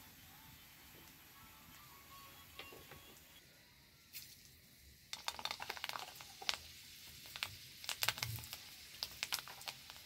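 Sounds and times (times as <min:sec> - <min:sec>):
hot oil crackling and popping: 0:00.0 - 0:01.4, 0:04.1 - 0:10.0
faint frying sizzle: 0:00.0 - 0:10.0.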